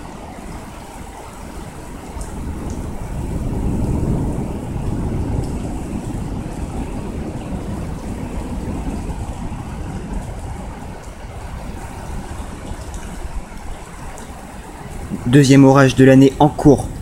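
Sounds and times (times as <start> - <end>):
deep thunder rumble: 0.0 - 17.0
heavy rain hiss: 0.0 - 17.0.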